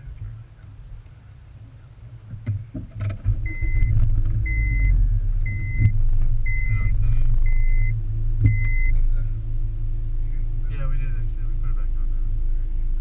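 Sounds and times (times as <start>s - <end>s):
muffled car engine rumble: 0.0s - 13.0s
high warning chime beeping: 4.5s - 5.9s, 6.5s - 7.9s, 8.5s - 9.0s.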